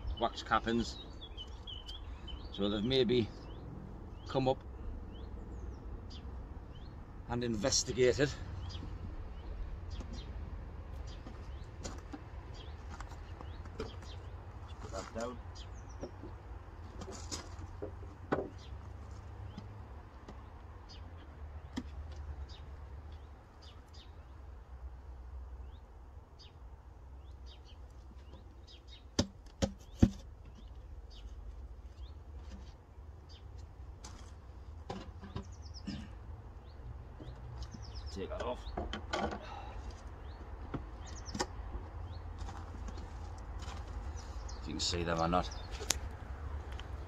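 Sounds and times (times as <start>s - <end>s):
small birds chirping: 0.0s - 47.0s
wooden board knocks: 17.8s - 18.7s.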